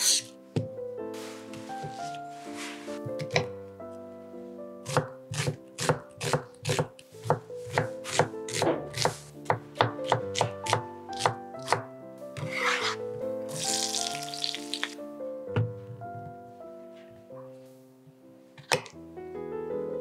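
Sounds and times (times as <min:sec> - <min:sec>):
background music: 0:00.0 - 0:20.0
knife chopping on wooden board: 0:04.9 - 0:11.8.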